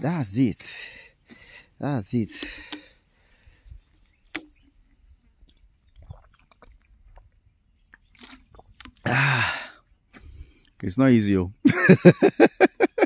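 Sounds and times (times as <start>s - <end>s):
sharp click: 4.3s - 4.6s.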